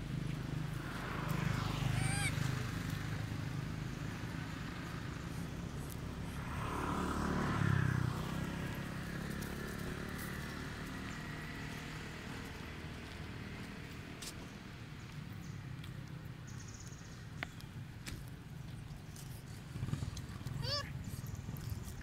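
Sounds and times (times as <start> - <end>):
vehicle engine passing: 0.4 - 14.9.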